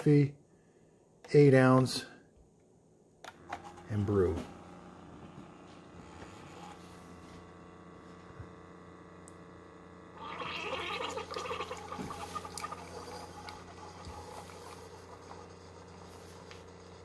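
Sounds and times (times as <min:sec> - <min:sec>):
coffee maker humming: 0:03.2 - 0:17.0
coffee gurgling into mug: 0:10.2 - 0:15.6.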